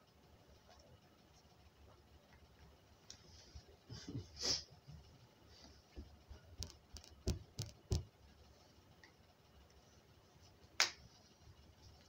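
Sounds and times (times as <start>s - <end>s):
soft knocks and clicks: 6.0s - 8.2s.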